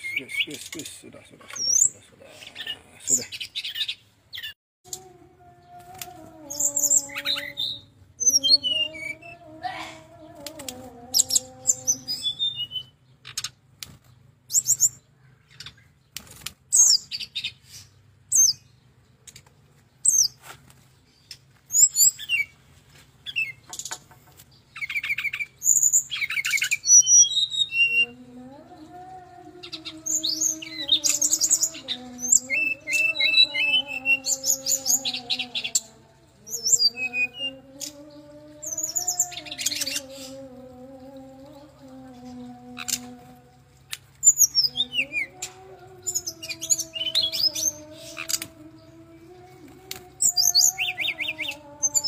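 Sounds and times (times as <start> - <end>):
bird chirps and trills: 0.0 - 20.4, 21.0 - 22.6, 23.2 - 52.0.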